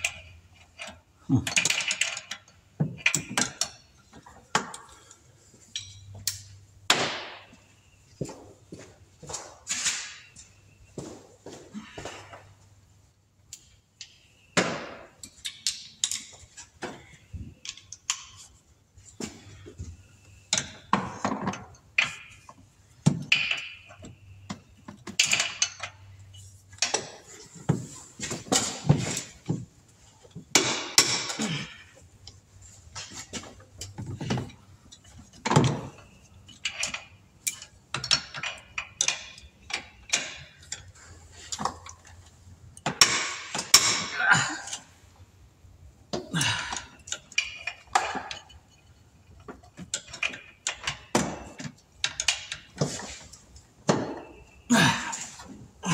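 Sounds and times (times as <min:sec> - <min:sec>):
metal tools clanking: 0:00.0 - 0:06.7, 0:14.0 - 0:45.2, 0:46.1 - 0:55.9.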